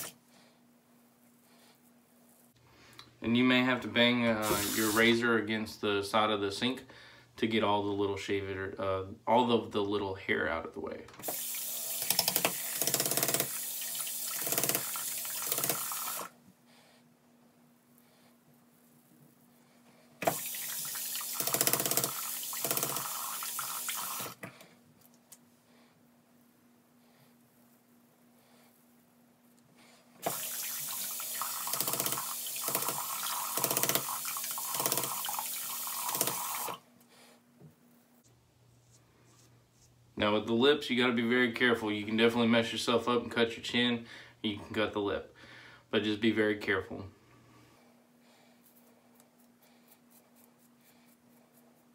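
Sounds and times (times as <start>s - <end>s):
sink tap running: 4.4s - 5.0s, 11.2s - 16.3s, 20.2s - 24.5s, 30.2s - 36.8s
razor rattling: 11.2s - 16.3s, 21.2s - 23.3s, 30.2s - 35.4s.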